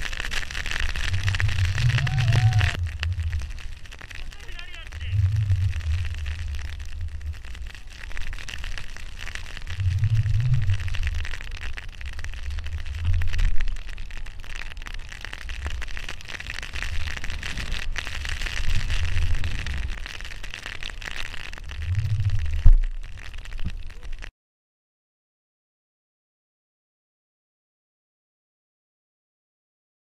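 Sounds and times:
skis hissing through snow: 0.0 - 6.6, 16.7 - 20.3
wind buffeting microphone: 0.0 - 7.9.

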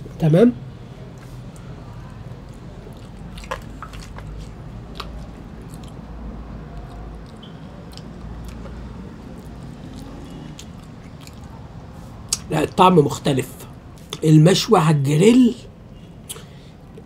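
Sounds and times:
person chewing: 1.1 - 12.5
wet mouth clicks: 2.4 - 11.6, 16.3 - 16.5.

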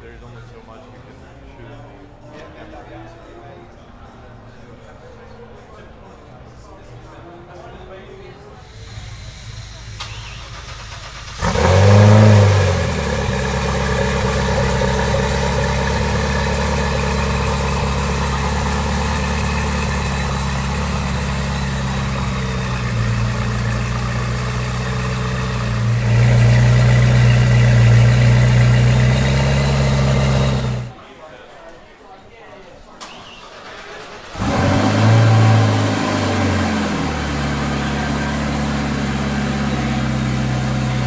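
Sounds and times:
car engine idling: 8.6 - 31.0, 33.2 - 41.0.

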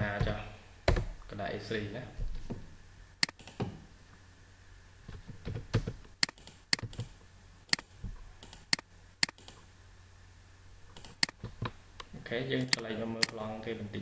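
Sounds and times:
computer mouse and keyboard clicks: 3.2 - 3.7, 5.2 - 9.6, 10.9 - 11.8.

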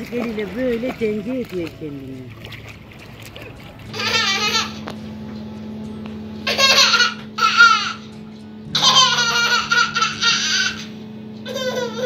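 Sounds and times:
baby laughing: 3.9 - 4.9, 6.4 - 8.1, 8.7 - 12.0.

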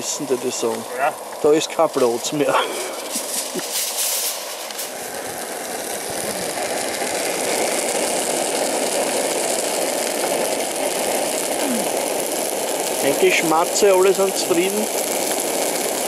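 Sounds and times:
camping stove burner rushing: 0.0 - 16.0.

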